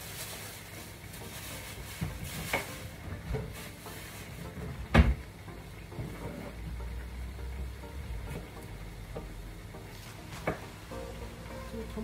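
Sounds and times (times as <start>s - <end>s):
plastic bag crinkling: 0.0s - 4.5s.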